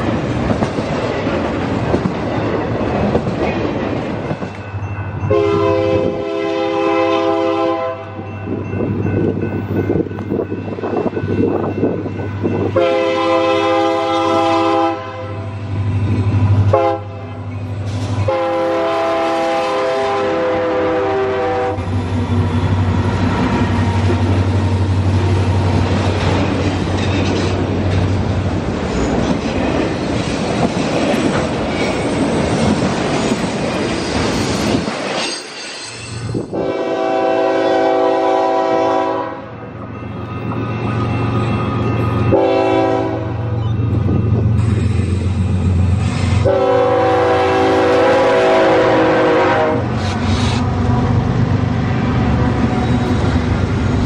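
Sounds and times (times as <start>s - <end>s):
locomotive engines droning: 0.0s - 54.0s
train cars rumbling and clacking: 0.0s - 54.0s
locomotive air horn: 5.3s - 8.3s, 12.8s - 15.6s, 16.7s - 17.5s, 18.1s - 21.9s, 36.5s - 39.6s, 42.3s - 43.6s, 46.3s - 50.6s.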